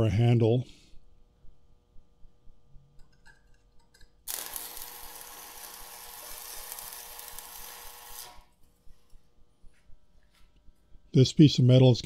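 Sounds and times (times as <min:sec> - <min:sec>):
arc welding hiss: 0:04.3 - 0:08.5.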